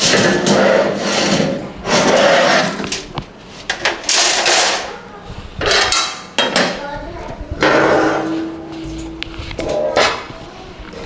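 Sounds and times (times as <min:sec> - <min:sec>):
metal shelves scraping: 0:00.0 - 0:05.0, 0:07.6 - 0:10.4.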